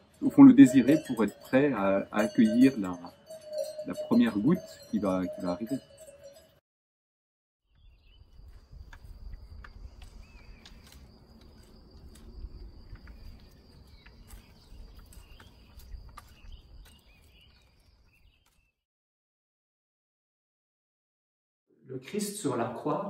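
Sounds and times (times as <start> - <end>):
bird chirps: 0.0 - 6.6, 7.7 - 18.8.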